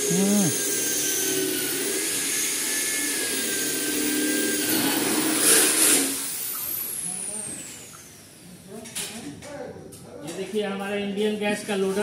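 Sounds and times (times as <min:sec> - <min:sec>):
power tool whirring: 0:00.0 - 0:08.4.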